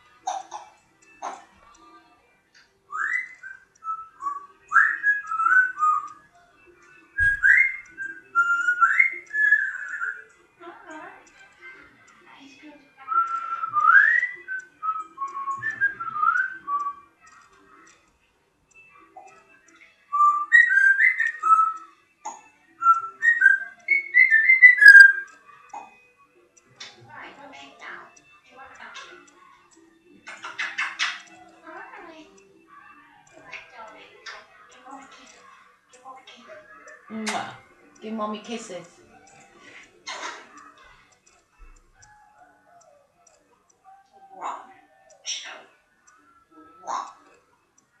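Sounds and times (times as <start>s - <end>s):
parrot whistling a tune: 2.9s - 10.4s, 13.1s - 17.4s, 18.8s - 26.0s, 30.2s - 31.8s.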